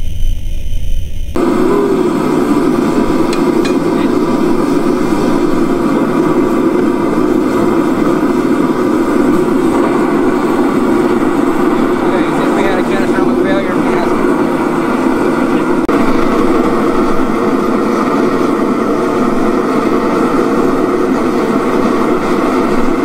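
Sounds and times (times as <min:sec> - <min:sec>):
gas forge burner rushing: 0:00.0 - 0:23.0.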